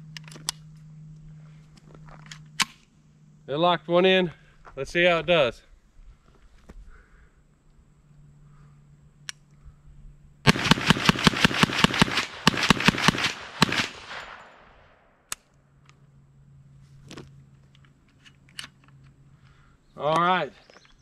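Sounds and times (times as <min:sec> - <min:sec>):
rifle firing rapid shots: 0:10.5 - 0:14.6
gunshot echo: 0:10.5 - 0:15.0.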